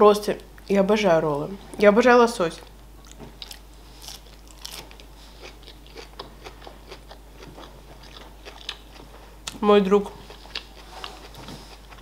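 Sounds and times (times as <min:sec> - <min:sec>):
person chewing food: 0:03.0 - 0:09.6, 0:10.2 - 0:12.0.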